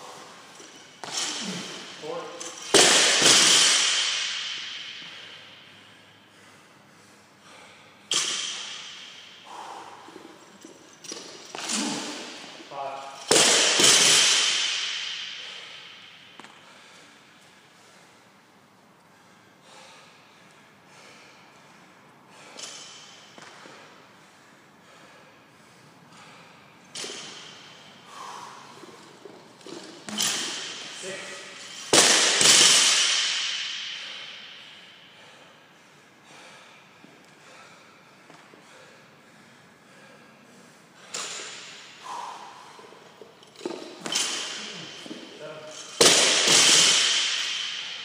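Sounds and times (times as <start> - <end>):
person grunting with effort: 1.4 - 1.7
man breathing hard: 3.8 - 12.6, 14.4 - 30.9, 33.2 - 43.5.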